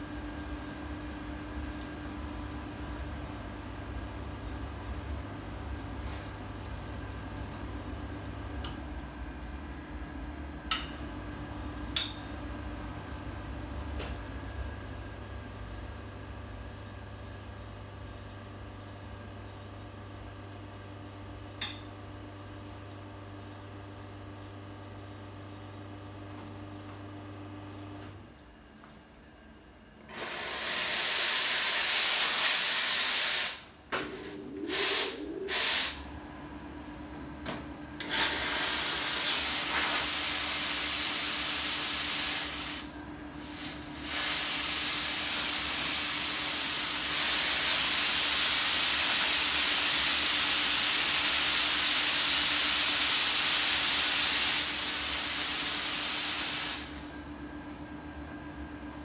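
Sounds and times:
espresso machine steam wand hissing: 30.2s - 36.1s, 38.0s - 57.2s.

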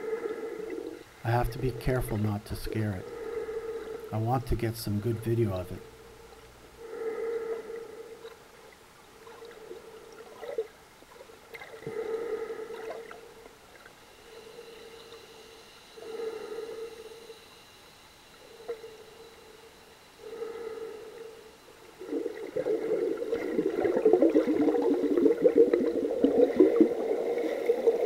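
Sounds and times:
breathing through snorkel underwater: 3.0s - 4.1s.

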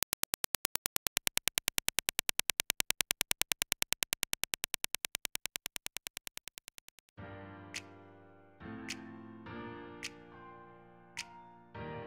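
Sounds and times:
rapid train of sharp clicks: 0.0s - 7.2s.

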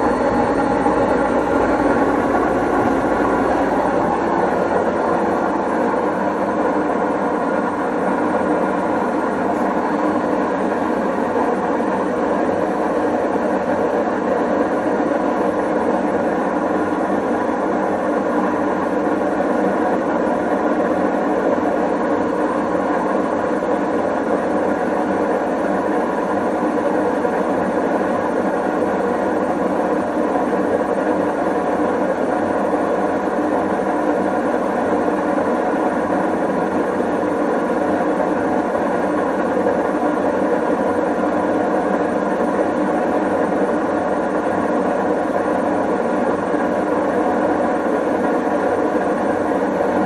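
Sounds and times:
washing machine running loudly: 0.0s - 50.0s.

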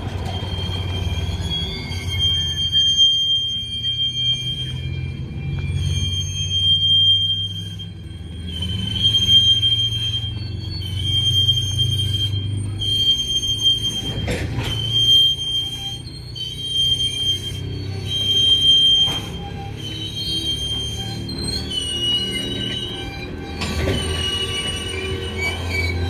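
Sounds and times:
steel wheel squeal: 0.0s - 26.0s
train low rumble: 0.0s - 26.0s
train clank: 13.8s - 15.5s, 18.0s - 20.1s, 22.4s - 26.0s.

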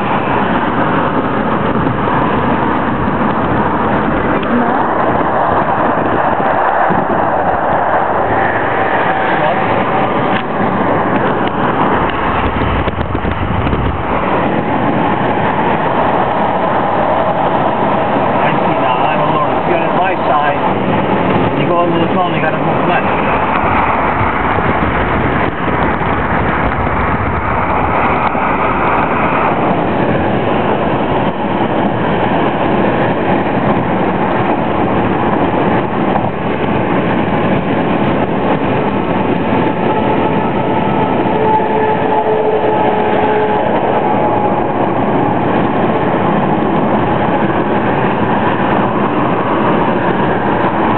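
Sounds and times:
road and wind noise in car: 0.0s - 50.9s.

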